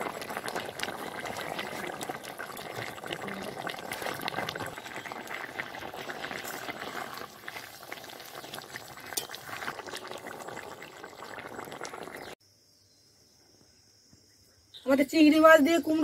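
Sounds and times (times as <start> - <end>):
curry boiling and bubbling: 0.0 - 12.4.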